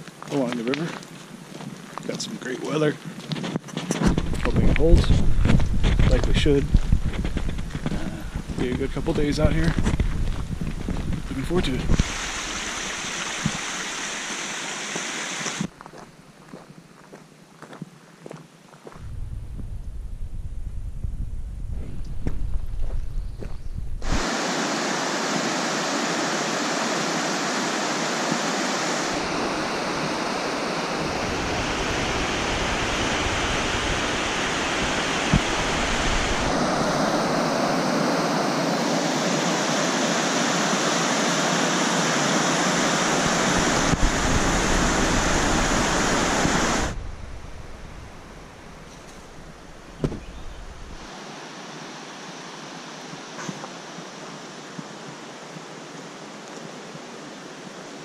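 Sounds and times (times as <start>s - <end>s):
river rapids rushing over boulders: 11.9s - 15.7s, 24.0s - 47.0s.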